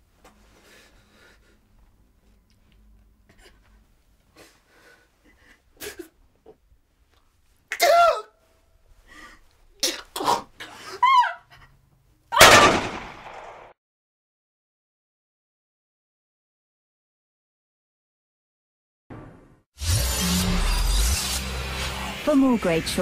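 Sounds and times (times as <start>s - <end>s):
gunshot: 12.4s - 13.7s.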